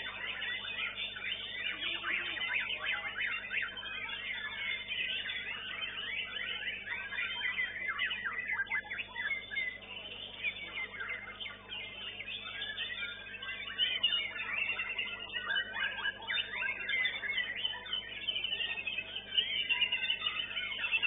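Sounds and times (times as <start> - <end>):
birds singing in chorus: 0.0 - 21.0.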